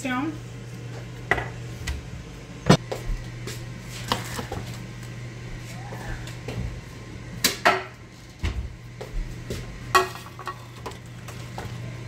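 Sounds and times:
steady low hum: 0.0s - 12.0s
kitchen things knocking and clattering: 9.9s - 11.0s.

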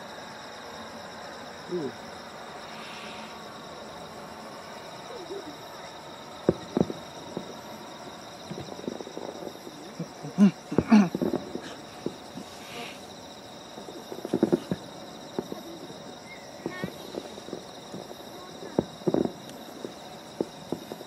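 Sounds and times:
crickets chirring: 0.0s - 21.0s
sharp knocks and thumps: 6.5s - 7.5s, 14.2s - 14.8s.

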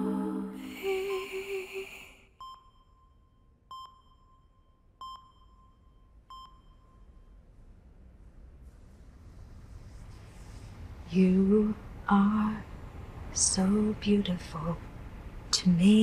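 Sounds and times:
soft music: 0.0s - 1.6s
patient monitor beeps: 2.4s - 7.4s.

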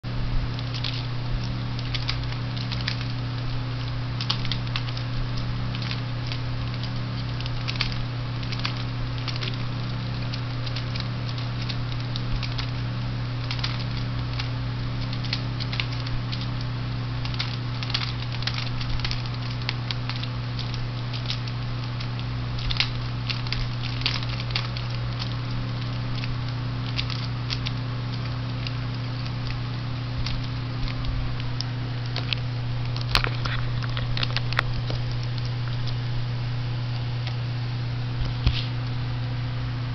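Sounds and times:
steady low hum: 0.0s - 39.9s
plastic toy clicks and rattles: 5.7s - 12.8s, 13.4s - 16.6s, 17.2s - 29.6s.

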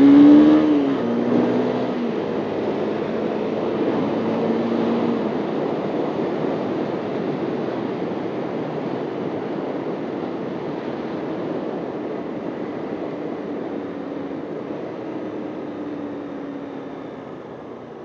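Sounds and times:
motorcycle engine: 0.0s - 6.0s
wind and road noise: 0.0s - 18.0s.

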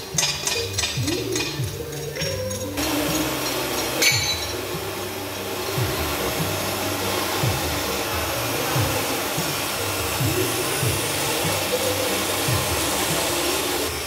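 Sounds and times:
metallic clink: 0.0s - 4.6s.

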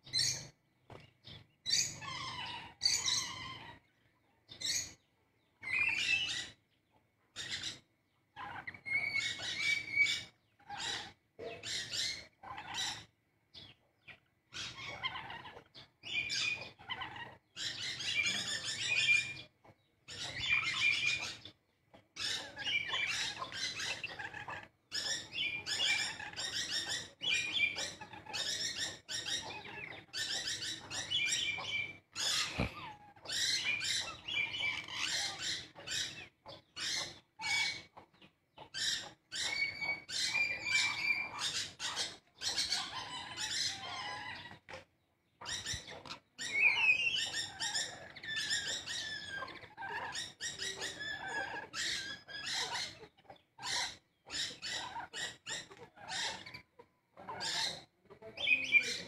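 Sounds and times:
parrots chattering and squawking: 0.0s - 59.0s.

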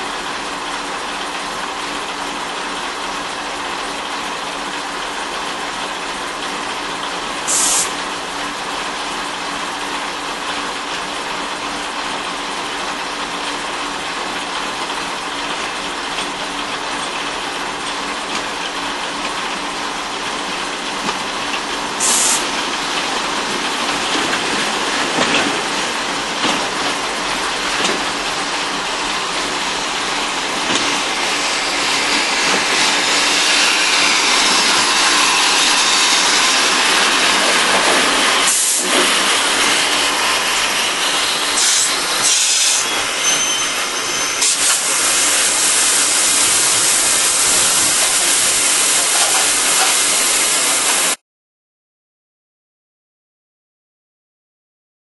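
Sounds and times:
steam locomotive hissing: 7.4s - 8.2s, 20.8s - 51.2s.

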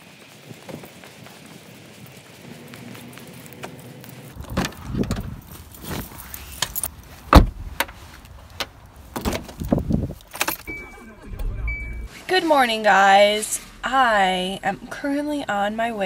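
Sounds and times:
car door shutting: 7.3s - 7.9s, 9.2s - 12.2s
keys jangling: 9.6s - 10.8s
short electronic car beep: 10.6s - 12.2s.

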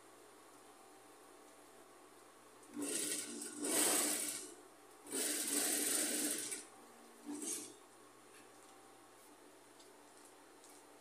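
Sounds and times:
sewing machine stitching: 2.7s - 7.8s.

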